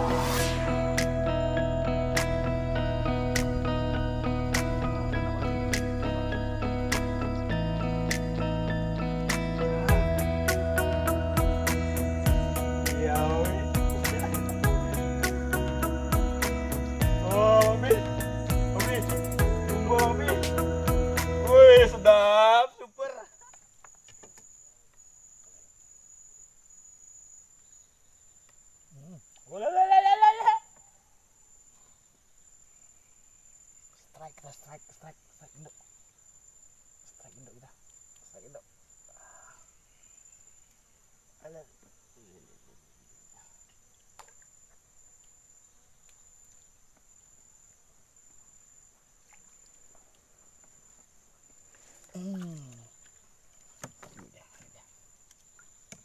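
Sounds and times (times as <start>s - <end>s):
high-pitched insect drone: 0.0s - 22.5s
insects droning: 0.0s - 56.0s
faint ticks: 37.0s - 38.4s.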